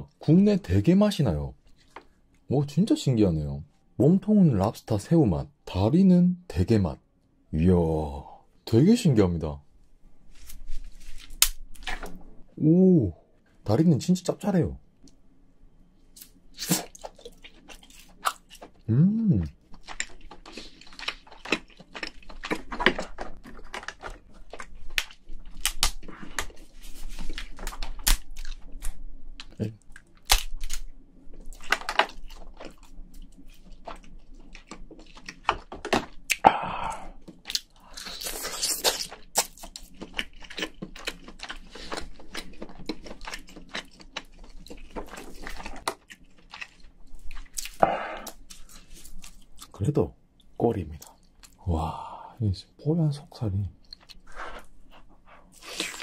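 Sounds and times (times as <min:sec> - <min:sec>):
close-up chewing: 0:16.2 - 0:18.9, 0:19.5 - 0:49.8, 0:53.8 - 0:56.0
lobster shell cracking: 0:19.8 - 0:26.5, 0:30.0 - 0:30.9, 0:31.5 - 0:32.8.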